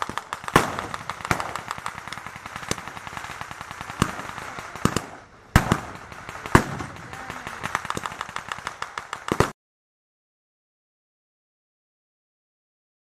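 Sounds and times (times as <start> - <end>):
distant gunfire crackle: 0.0 - 9.6
loud close gunshots: 0.0 - 9.6.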